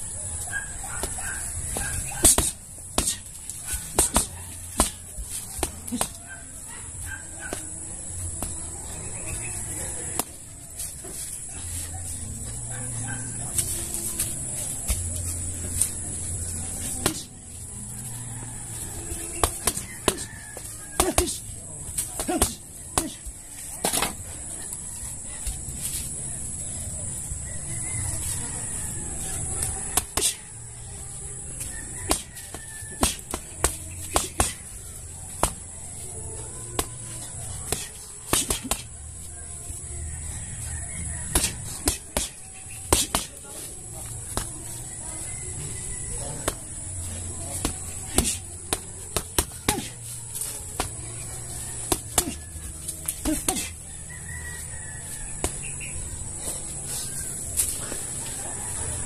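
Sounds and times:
boxing gloves punching bag: 1.0 - 6.2, 32.0 - 35.7, 36.8 - 39.0, 41.2 - 43.4, 47.6 - 50.0
rooster crowing: 16.7 - 21.8, 27.3 - 30.4, 31.1 - 35.0, 35.9 - 48.5, 49.1 - 59.0.

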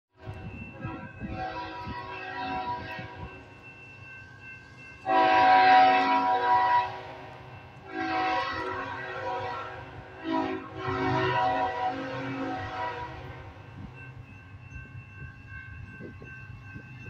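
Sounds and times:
locomotive air horn blasts: 0.2 - 3.4, 5.0 - 13.5.

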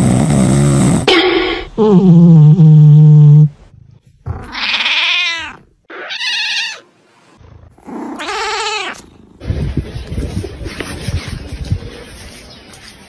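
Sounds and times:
cat meowing: 4.4 - 6.8, 8.2 - 9.0.

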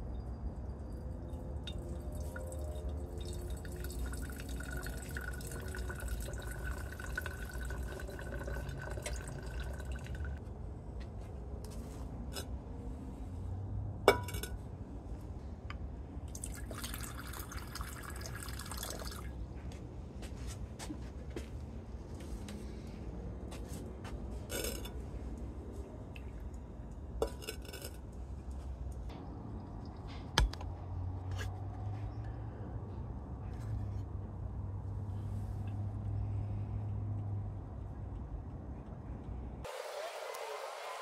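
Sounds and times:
low steady hum: 0.0 - 39.8.

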